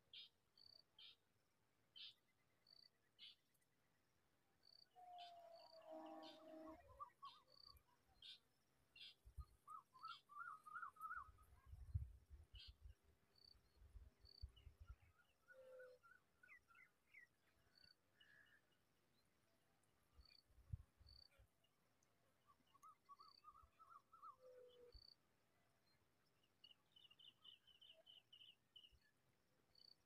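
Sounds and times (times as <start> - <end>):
songbird twittering: 9.0 - 11.4.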